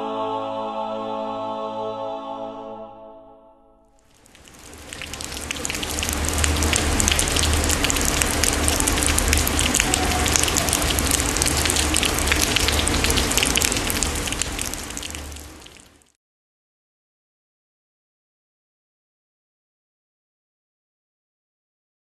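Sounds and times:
water splashing onto a surface: 4.0 - 16.2.

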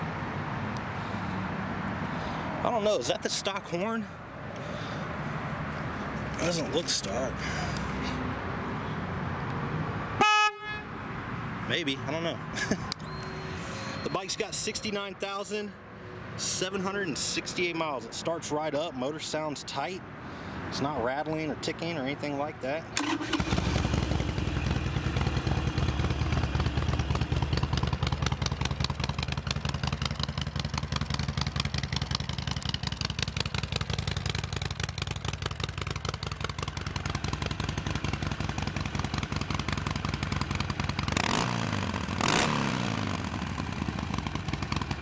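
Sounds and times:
motorcycle engine idling and revving: 4.8 - 9.0, 12.9 - 15.0, 23.0 - 45.0.

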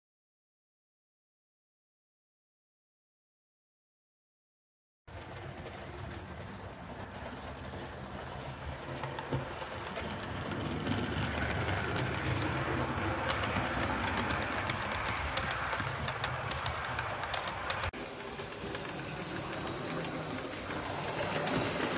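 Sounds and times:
model train wheels rumbling: 5.1 - 21.9
wheels clicking over rail joints: 5.1 - 21.9.

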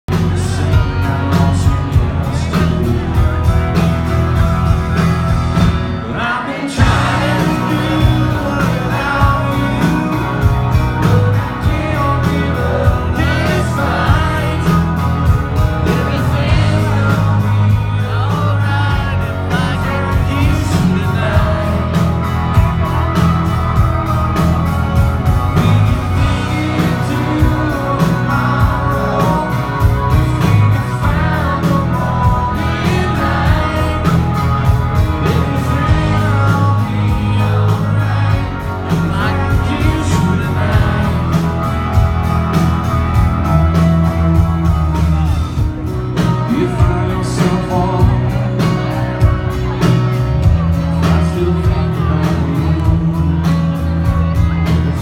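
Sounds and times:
live country rock band: 0.0 - 55.0
man singing: 0.1 - 55.0.

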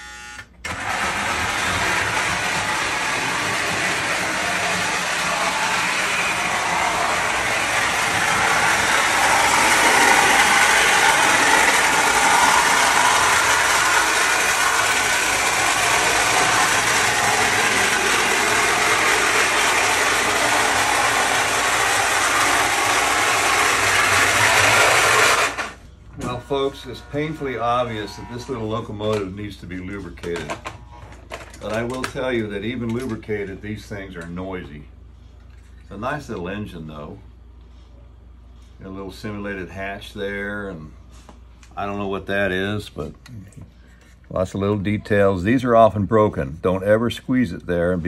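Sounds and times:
toy train motor and gears: 0.1 - 25.8.

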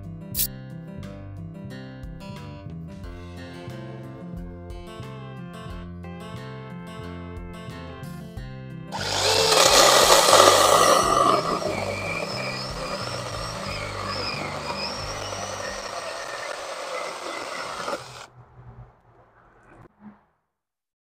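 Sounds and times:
mini chainsaw cutting wood: 9.0 - 18.3.

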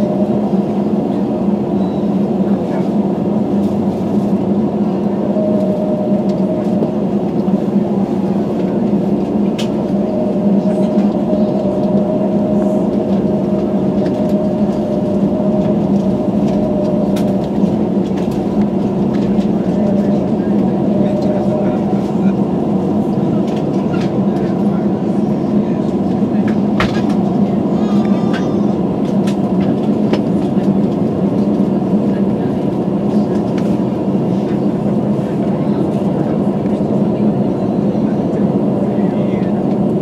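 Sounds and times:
aircraft cabin air hum: 0.0 - 40.0.

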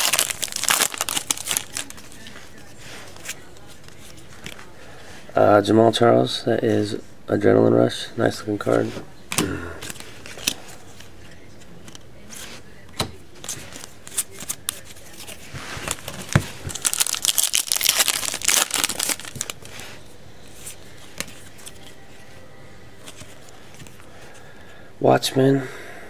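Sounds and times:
foil wrapper crinkling and tearing: 0.0 - 2.4, 16.7 - 19.8.

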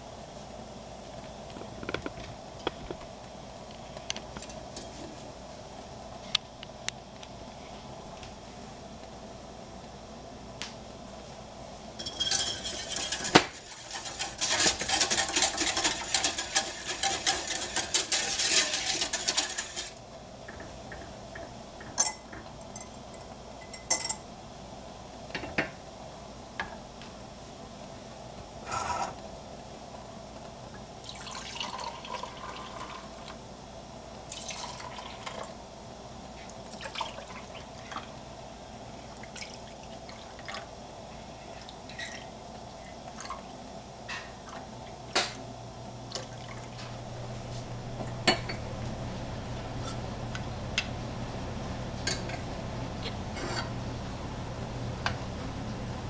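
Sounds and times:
whisk beating in a saucepan: 12.0 - 20.0
pans and utensils clinking: 12.0 - 24.2, 48.0 - 48.7
milk pouring into glass jars: 31.0 - 33.2, 34.3 - 35.5.

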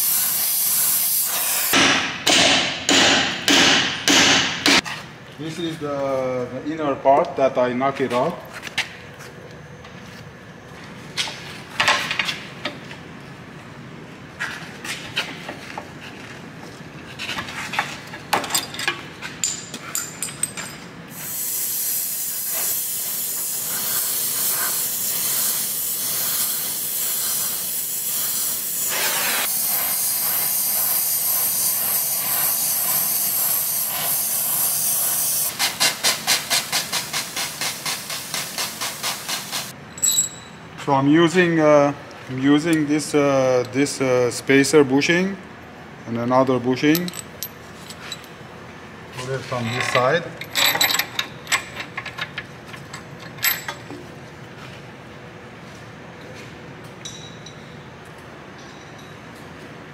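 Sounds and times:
gas torch hissing: 0.0 - 1.8, 21.1 - 39.8.

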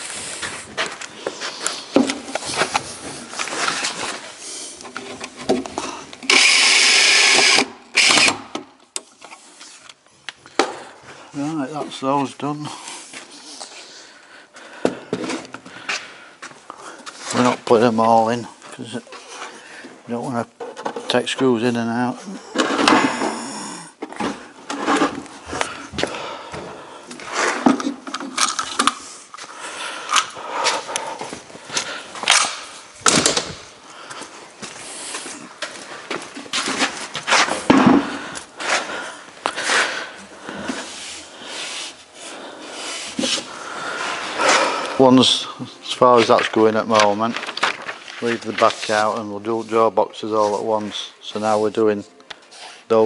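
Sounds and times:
cordless drill running: 6.2 - 8.4.

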